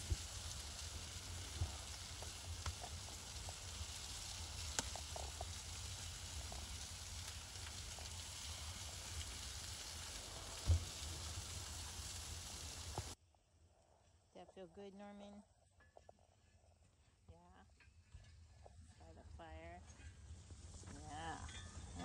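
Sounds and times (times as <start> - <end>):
fat sizzling in fire: 0.0 - 13.2, 17.7 - 22.0
thump: 10.6 - 10.9.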